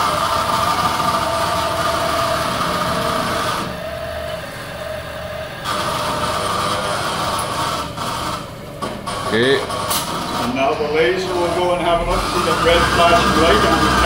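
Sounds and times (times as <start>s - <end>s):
two-note mechanical whine: 10.5s - 14.0s.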